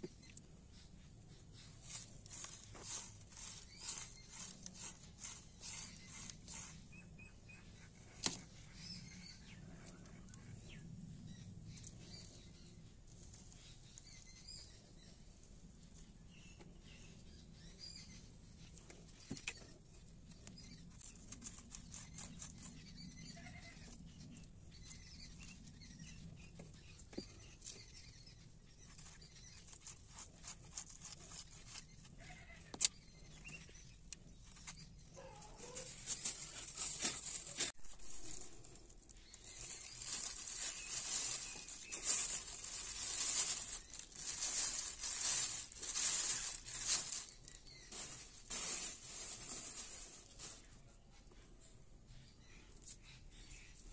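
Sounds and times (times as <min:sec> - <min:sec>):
plastic bag rustling: 0:35.4 - 0:50.7.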